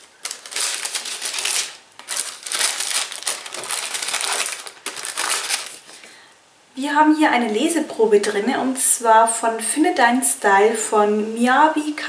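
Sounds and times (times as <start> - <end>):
wrapping paper crinkling: 0.0 - 6.1.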